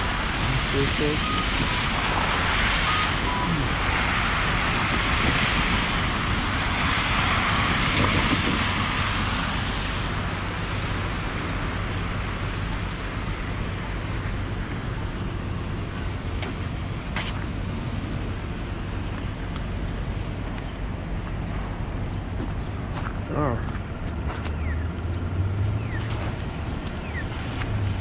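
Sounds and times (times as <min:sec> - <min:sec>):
tyres hissing on wet pavement: 0:00.0 - 0:19.1, 0:26.0 - 0:28.0
low rumble of engines: 0:00.0 - 0:28.0.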